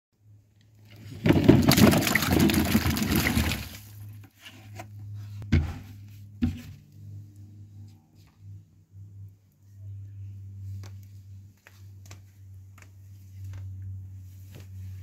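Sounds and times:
apples splashing into water: 1.2s - 4.0s.

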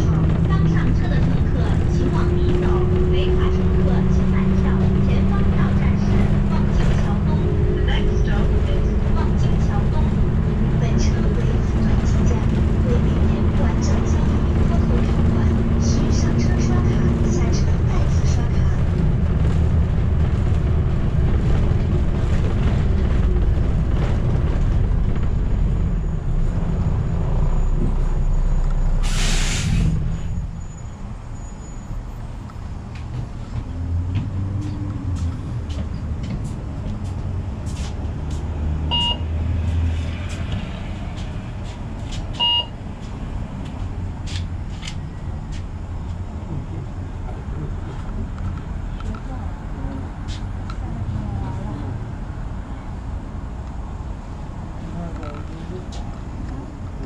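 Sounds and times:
bus engine rumble: 0.0s - 57.0s
air brake hiss: 29.0s - 30.0s
short electronic beeps: 38.9s - 39.3s, 42.4s - 42.8s.

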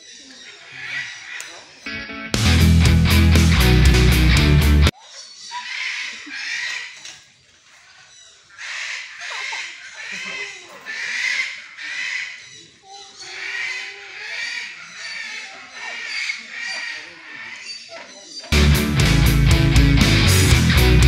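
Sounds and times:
macaws squawking: 0.0s - 1.9s, 4.9s - 18.6s.

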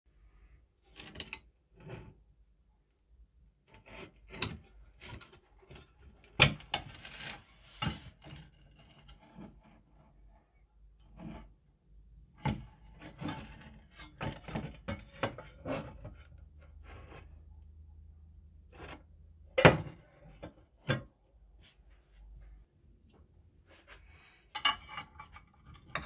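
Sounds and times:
metal tin scraping and clattering: 12.5s - 16.4s, 24.1s - 26.0s.

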